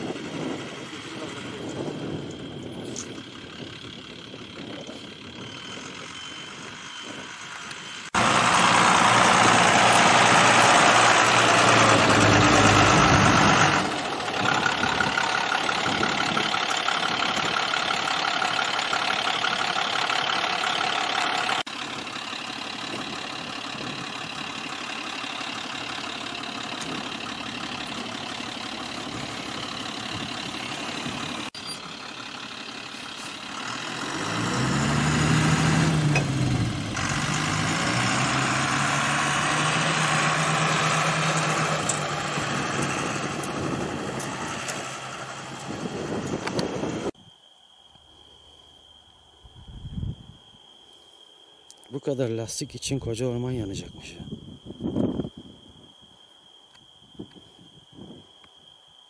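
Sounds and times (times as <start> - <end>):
diesel engine running: 0.0 - 47.2.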